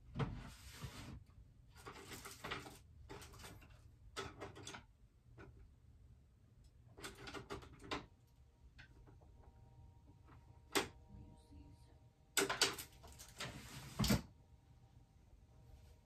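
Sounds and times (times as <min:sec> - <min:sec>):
rustling clatter: 0:01.7 - 0:04.8.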